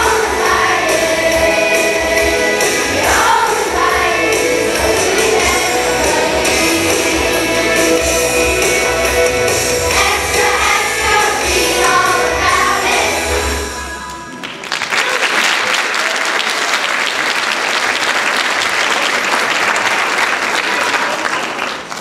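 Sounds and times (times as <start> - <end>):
children's choir singing: 0.0 - 14.4
instrumental accompaniment: 0.0 - 14.6
audience applause: 14.1 - 22.0.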